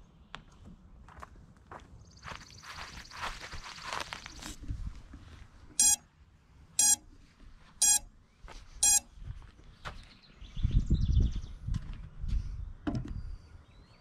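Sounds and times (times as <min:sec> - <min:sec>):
footsteps on grass: 0:01.1 - 0:05.5, 0:08.4 - 0:10.2
short electronic beeps: 0:05.8 - 0:06.1, 0:06.8 - 0:07.0, 0:07.8 - 0:08.1, 0:08.8 - 0:09.1.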